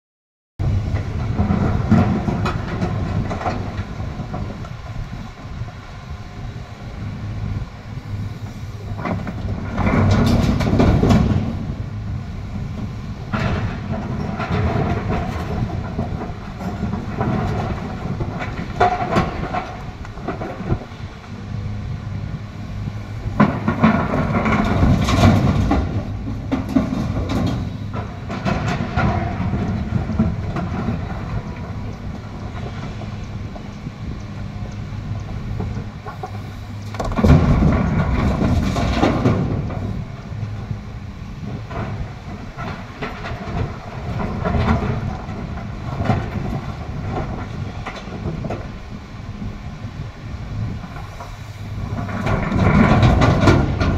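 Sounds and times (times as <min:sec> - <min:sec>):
excavator diesel engine running: 0:00.6 - 0:53.9
rocks clattering into truck body: 0:23.3 - 0:31.8, 0:36.9 - 0:40.1, 0:51.8 - 0:53.9.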